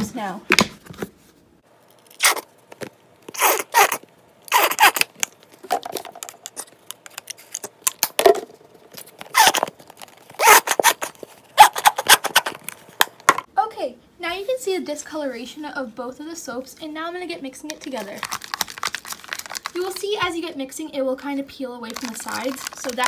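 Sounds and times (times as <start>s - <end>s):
plastic bottles squeezed and crackling: 1.9s - 13.3s, 17.7s - 20.5s, 21.8s - 23.0s.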